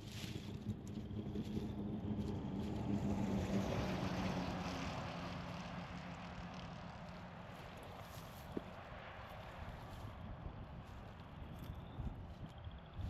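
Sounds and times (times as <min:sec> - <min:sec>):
distant vehicle engine passing: 0:00.2 - 0:08.1.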